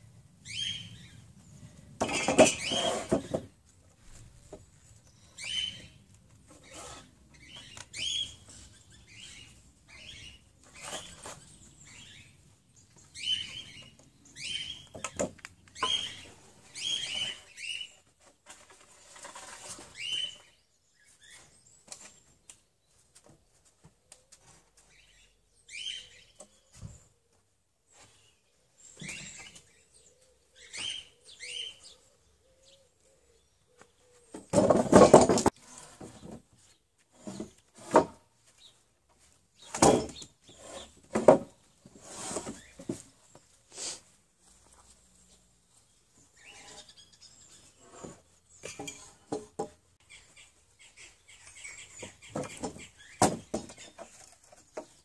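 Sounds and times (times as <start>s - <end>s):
small birds chirping: 0.2s - 34.5s, 38.4s - 55.0s
wooden beams clattering: 2.0s - 4.6s, 34.3s - 36.6s, 39.6s - 43.5s, 51.9s - 55.0s
sharp knocks of wooden beams: 14.9s - 16.1s, 34.3s - 36.4s, 39.7s - 40.3s, 41.0s - 41.6s, 48.6s - 49.8s, 52.0s - 55.0s.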